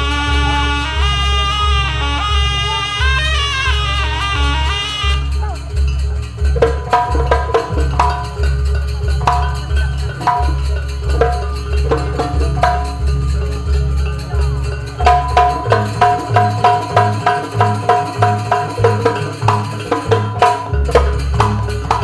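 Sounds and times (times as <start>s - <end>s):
deep bass beats: 0.0s - 19.6s
drum strokes: 0.0s - 22.0s
ringing metal percussion strikes: 0.0s - 22.0s.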